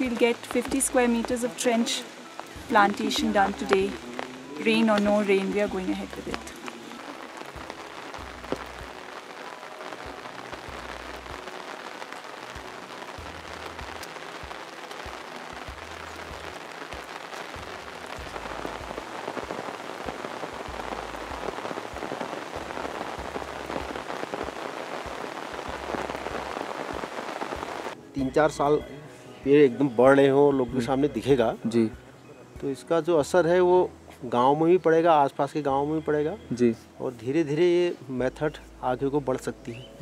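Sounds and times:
rain falling: 0.0s - 28.6s.

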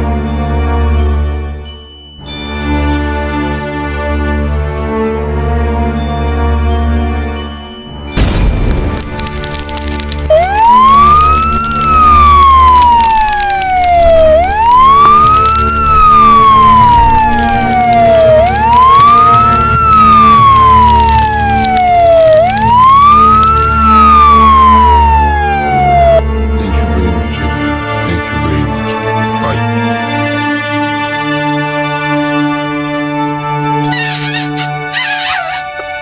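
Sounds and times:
background music: 0.0s - 36.0s
fire engine siren wailing: 9.2s - 27.4s, 33.9s - 35.9s.

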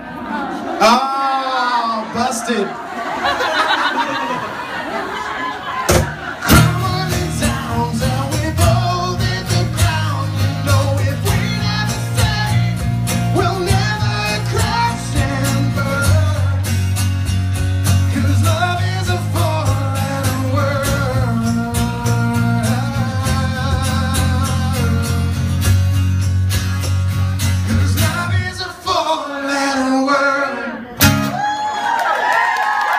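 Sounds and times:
acoustic guitars strumming: 5.8s - 31.4s
man singing into microphone: 6.4s - 16.8s, 18.0s - 25.5s, 27.7s - 30.8s.

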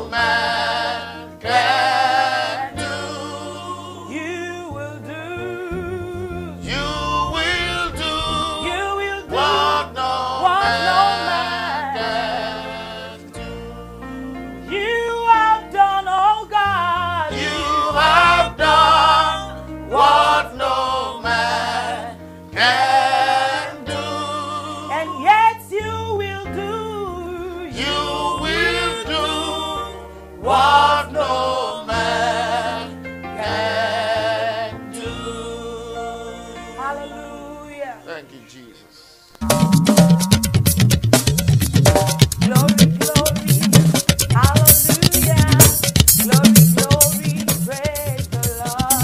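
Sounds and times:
gospel singing: 0.0s - 40.9s, 41.9s - 49.0s
held low accompaniment notes: 5.7s - 10.0s, 39.4s - 43.8s.

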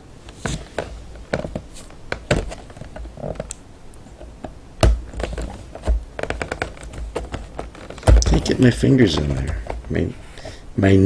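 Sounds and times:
cardboard box taps and clicks: 0.4s - 3.6s, 4.2s - 10.0s.

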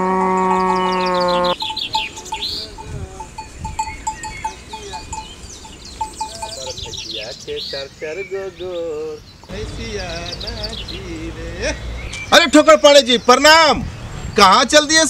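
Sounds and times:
long low-pitched call: 0.0s - 7.0s
birds chirping: 0.0s - 15.0s.

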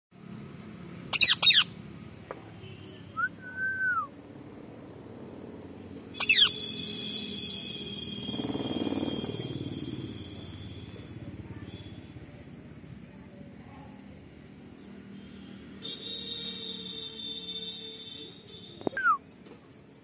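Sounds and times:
parakeet screeching: 1.1s - 1.7s, 6.2s - 6.8s.

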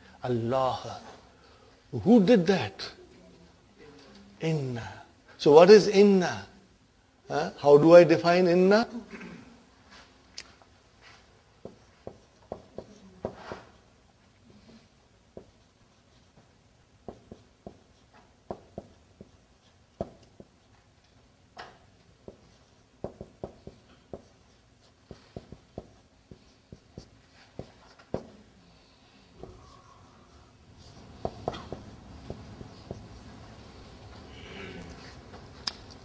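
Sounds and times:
marker writing on whiteboard: 11.6s - 13.8s, 14.7s - 28.5s, 29.4s - 29.9s, 30.8s - 33.9s.

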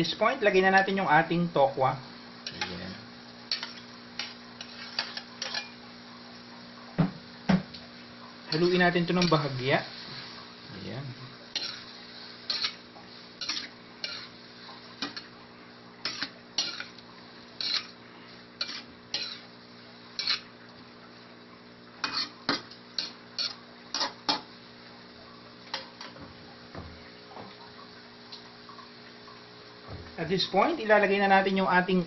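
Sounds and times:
faint sizzle: 0.0s - 32.0s
metal spatula scraping a wok: 3.5s - 5.8s, 11.5s - 12.8s, 13.4s - 14.4s, 16.0s - 17.0s, 17.6s - 18.0s, 18.6s - 19.5s, 20.2s - 20.5s, 22.0s - 24.4s.

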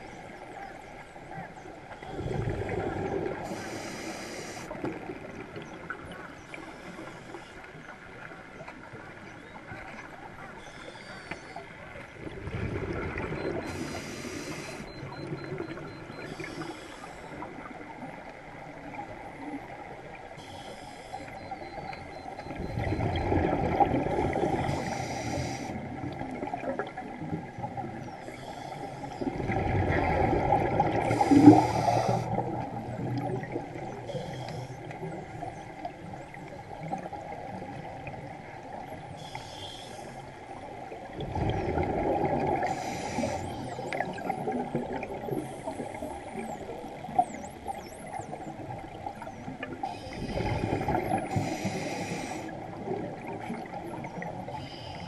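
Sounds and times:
exhaled bubbles rushing: 2.1s - 3.5s, 12.2s - 13.8s, 22.5s - 24.7s, 29.2s - 34.0s, 41.1s - 42.8s, 50.2s - 51.9s
regulator hissing inhalations: 3.5s - 4.7s, 13.7s - 14.9s, 20.4s - 21.4s, 24.7s - 25.8s, 31.1s - 32.4s, 42.7s - 43.6s, 51.3s - 52.6s.

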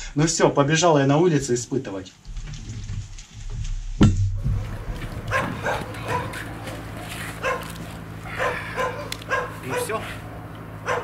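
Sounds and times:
steady low hum: 3.6s - 11.0s
dog barking: 5.2s - 11.0s.

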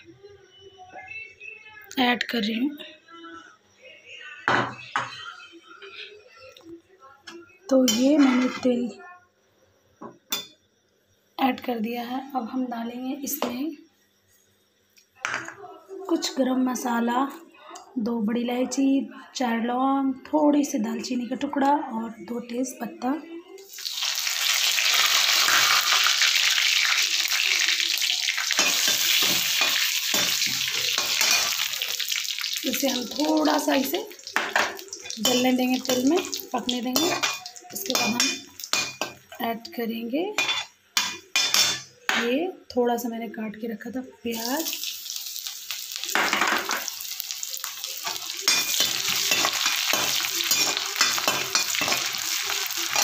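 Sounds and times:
spices sizzling in hot oil: 23.6s - 39.6s, 40.3s - 41.9s, 44.3s - 53.0s
utensil stirring in pan: 23.7s - 39.3s, 44.3s - 53.0s.

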